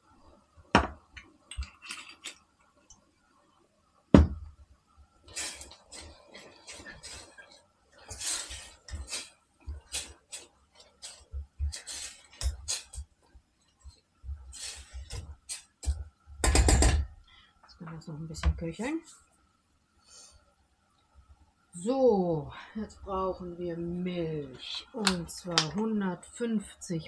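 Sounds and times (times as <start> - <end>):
utensil scraping and clinking: 1.5 - 2.4.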